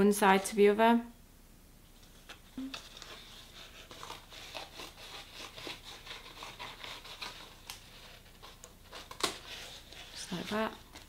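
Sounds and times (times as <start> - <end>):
paper rustling: 2.0 - 11.0
scissors snipping paper: 2.7 - 11.0.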